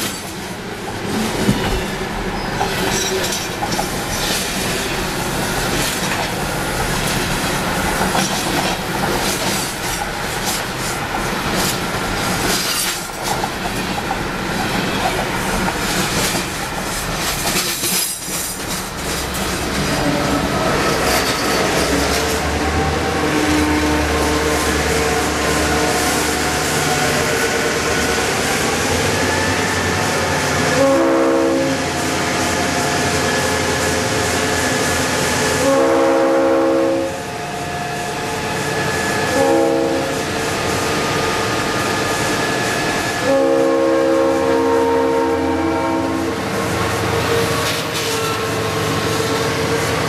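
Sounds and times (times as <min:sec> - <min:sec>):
diesel locomotive engine rumble: 0:00.0 - 0:50.0
rolling train wheels: 0:00.0 - 0:50.0
locomotive horn blasts: 0:22.8 - 0:27.8, 0:30.8 - 0:31.9, 0:35.6 - 0:37.3, 0:39.3 - 0:40.5, 0:43.1 - 0:46.4.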